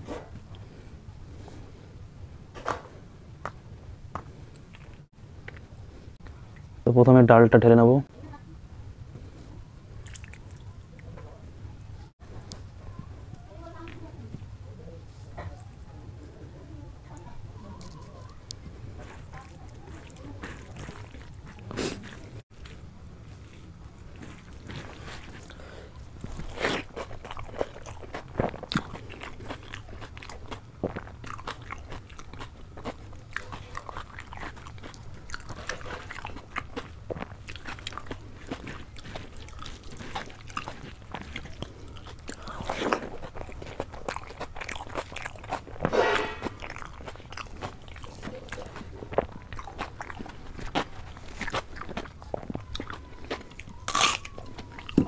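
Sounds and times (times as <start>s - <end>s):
chewing and crunchy bites: 4.1s - 5.7s, 10.0s - 11.1s, 17.2s - 55.0s.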